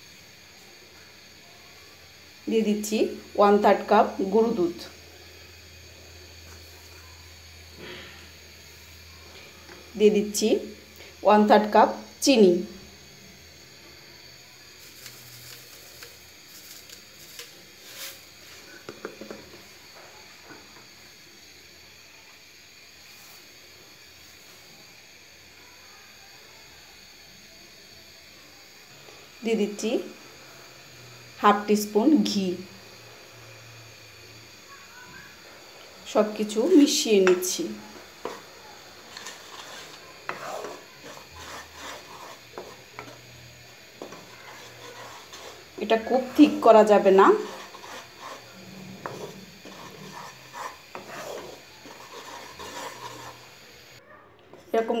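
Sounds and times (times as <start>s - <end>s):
mixture bubbling: 13.0s - 23.7s, 32.8s - 54.0s
spatula scraping a pan: 14.8s - 18.8s, 37.2s - 54.0s.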